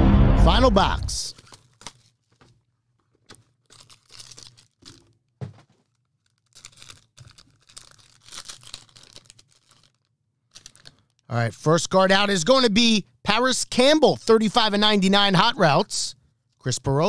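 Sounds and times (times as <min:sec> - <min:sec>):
foil wrapper tearing and crinkling: 0:01.3 - 0:11.3
soft thump: 0:05.4 - 0:05.6.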